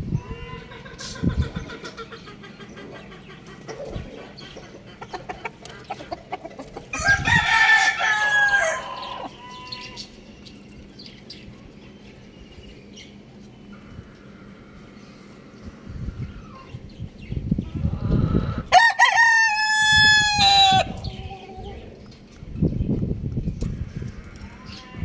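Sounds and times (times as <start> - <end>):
hen clucking: 0.2 - 7.3, 17.6 - 18.8
rooster crowing: 6.9 - 10.0, 18.7 - 21.0.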